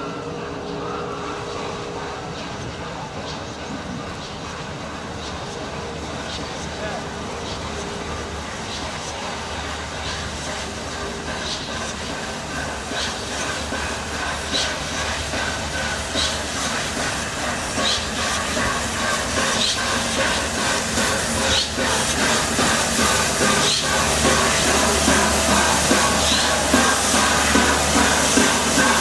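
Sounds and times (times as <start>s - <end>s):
steam locomotive hissing and rumbling: 0.0s - 29.0s.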